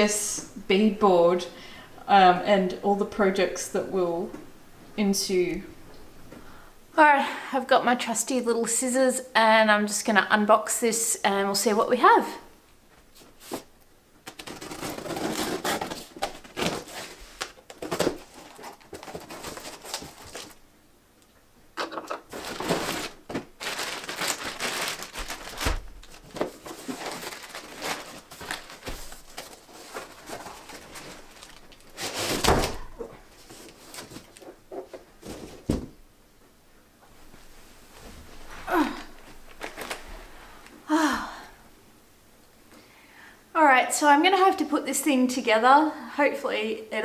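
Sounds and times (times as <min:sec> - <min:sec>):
plastic-wrapped parts pulled out: 0:14.2 - 0:20.6, 0:21.8 - 0:34.5
cardboard scraping and rustling: 0:14.3 - 0:20.6, 0:22.1 - 0:35.9.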